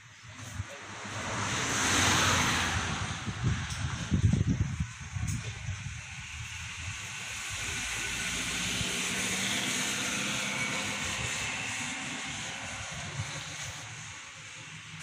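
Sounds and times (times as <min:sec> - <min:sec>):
distant engine passing by: 0:05.6 - 0:15.0.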